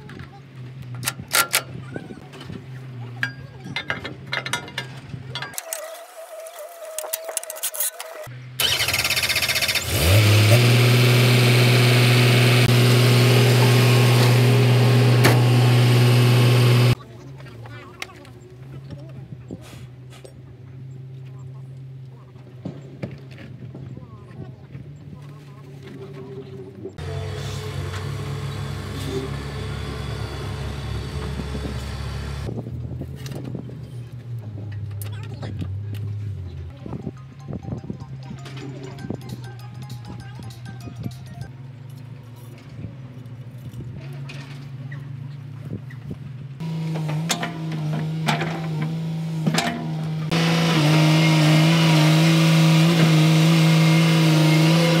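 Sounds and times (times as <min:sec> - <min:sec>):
engine humming: 0:07.4 - 0:55.0
diesel engine starting and idling: 0:08.3 - 0:17.0, 0:27.0 - 0:32.5.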